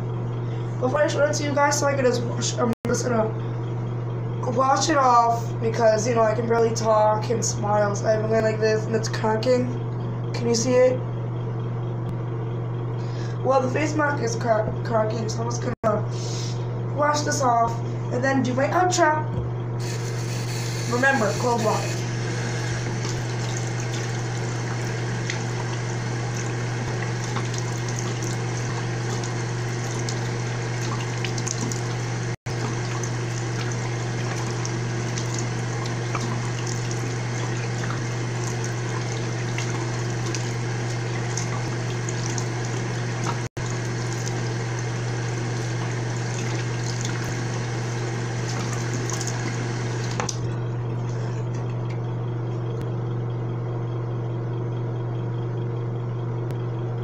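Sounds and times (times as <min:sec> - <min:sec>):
steady low hum: 0:00.0 - 0:57.0
water splashing on face: 0:22.1 - 0:50.4
tap running into sink: 0:23.0 - 0:44.4.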